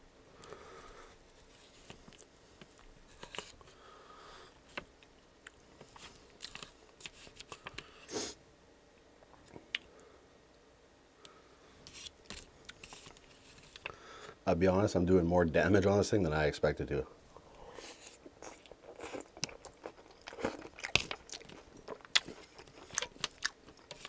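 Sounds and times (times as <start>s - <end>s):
wet chewing: 17.8s - 24.0s.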